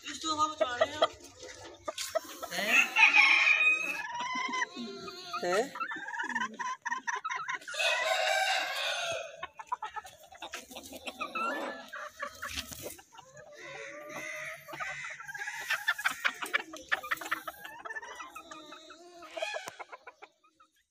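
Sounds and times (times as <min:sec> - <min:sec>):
chickens clucking: 0:00.0 - 0:20.9
rooster crowing: 0:02.6 - 0:04.1, 0:07.7 - 0:09.4.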